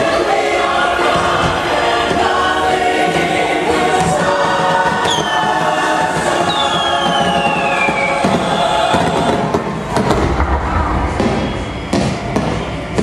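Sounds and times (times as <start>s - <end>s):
choir singing over music: 0.0s - 13.0s
falling whistle: 5.0s - 5.7s, 6.4s - 8.4s.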